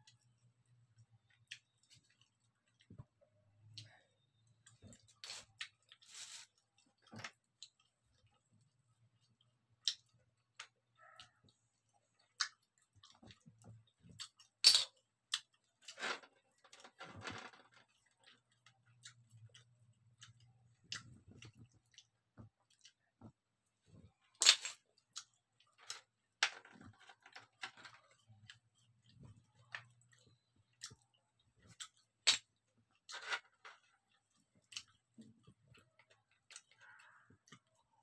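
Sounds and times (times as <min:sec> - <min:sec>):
chewing: 0:01.2 - 0:14.6, 0:17.8 - 0:23.5, 0:33.8 - 0:38.0.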